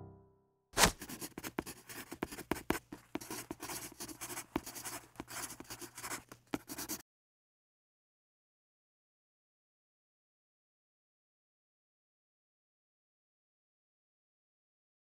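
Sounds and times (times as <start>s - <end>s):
pen scratching on paper: 0.8s - 7.0s.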